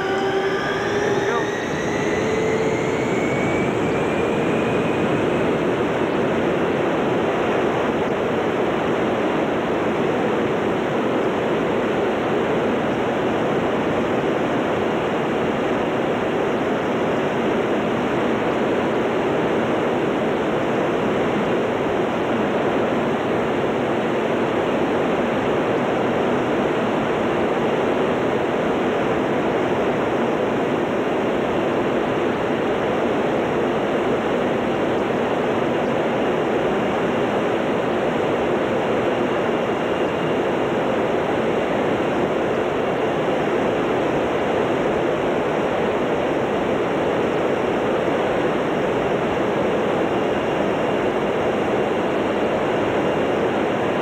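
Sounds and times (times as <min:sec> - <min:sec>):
rising engine whine: 0:00.0 - 0:08.3
jet engine roar: 0:00.0 - 0:54.0.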